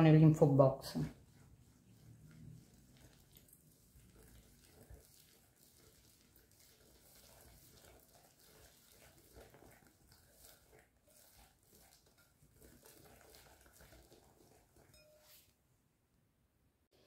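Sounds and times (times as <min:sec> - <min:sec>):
whisk beating in glass bowl: 0:00.0 - 0:15.6.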